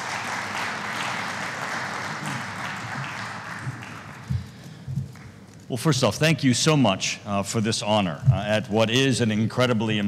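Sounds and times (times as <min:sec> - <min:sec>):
audience applause: 0:00.0 - 0:05.4.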